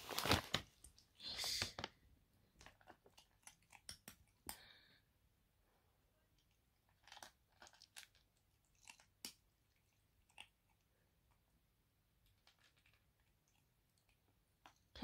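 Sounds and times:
kitten crunching kibble: 2.5 - 4.5, 6.4 - 10.9, 12.2 - 14.9.

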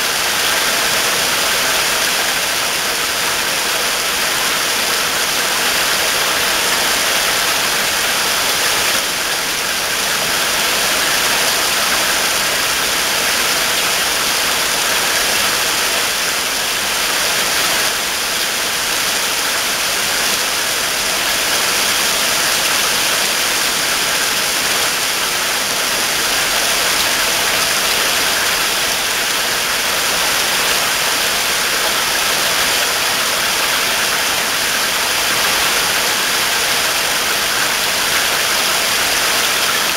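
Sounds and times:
heavy rain: 0.0 - 39.9.

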